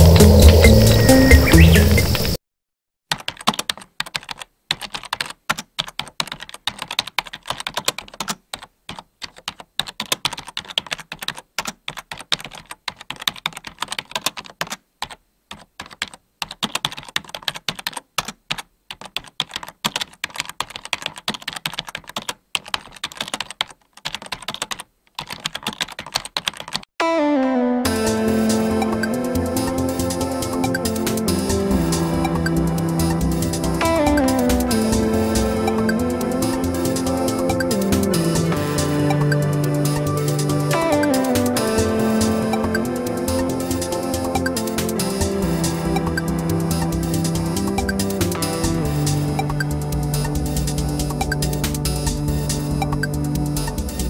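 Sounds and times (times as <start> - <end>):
music: 0.0 - 2.4, 27.0 - 54.0
computer keyboard typing: 3.1 - 26.9, 28.5 - 54.0.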